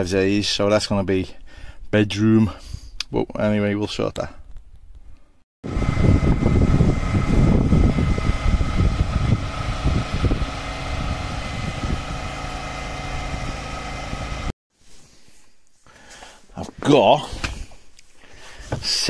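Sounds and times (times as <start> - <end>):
mechanical hum: 5.7 - 14.5.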